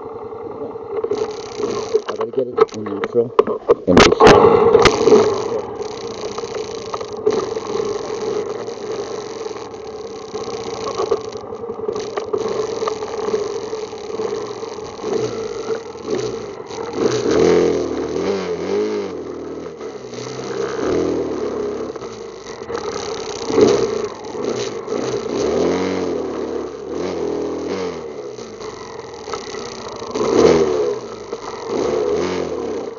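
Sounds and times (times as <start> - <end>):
atv engine running: 0.0 - 32.9.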